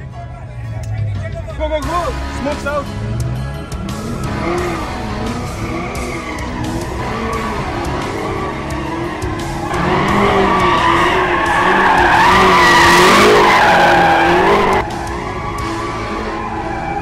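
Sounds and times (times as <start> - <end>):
tyres squealing: 3.9 - 17.0.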